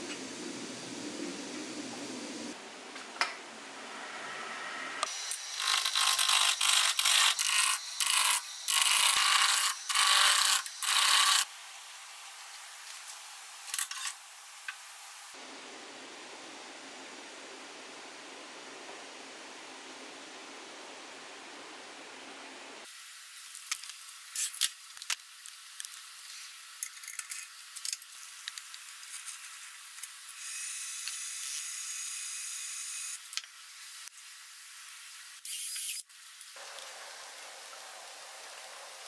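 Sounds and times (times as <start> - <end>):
thin hiss: 22.8 - 39.0.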